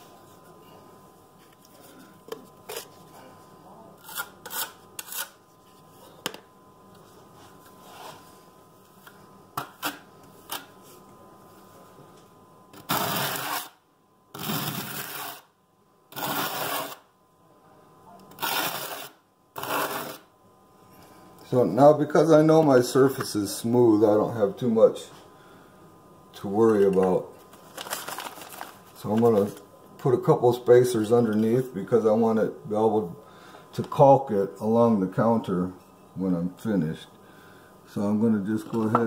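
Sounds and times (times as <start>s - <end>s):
trowel scraping mortar: 4.0s - 5.4s, 12.9s - 13.7s, 14.4s - 15.4s, 16.2s - 17.0s, 18.4s - 20.2s.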